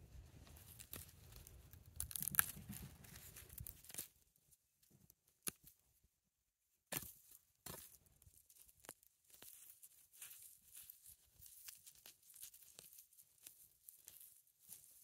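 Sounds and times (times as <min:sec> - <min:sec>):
hands rustling and scraping soil: 0:00.0 - 0:05.8, 0:07.0 - 0:15.0
root snapping: 0:00.7 - 0:04.1.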